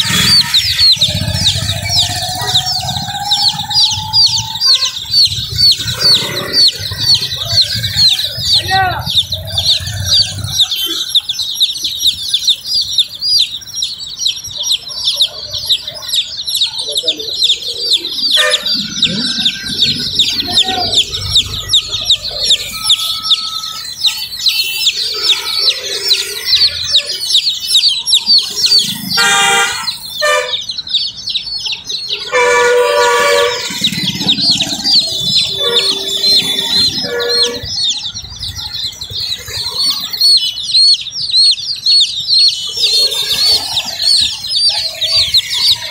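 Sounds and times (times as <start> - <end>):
baby chicks peeping: 0.0 - 45.9
vehicle horn honking: 18.3 - 18.8, 21.6 - 25.9, 29.2 - 30.7, 32.1 - 33.9, 35.2 - 37.7.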